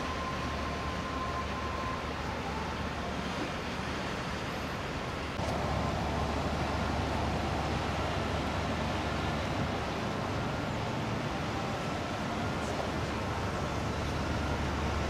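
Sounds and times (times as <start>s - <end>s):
distant engine and traffic drone: 0.0s - 15.0s.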